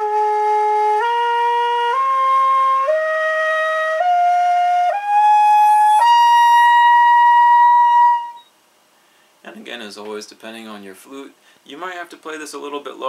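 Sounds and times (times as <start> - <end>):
bamboo flute notes: 0.0 - 8.5
breath noise: 8.8 - 9.4, 11.4 - 11.7.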